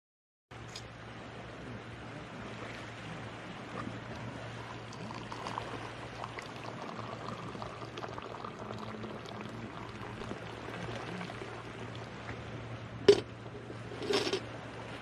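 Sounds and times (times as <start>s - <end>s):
tea pouring into a glass: 4.5s - 12.1s.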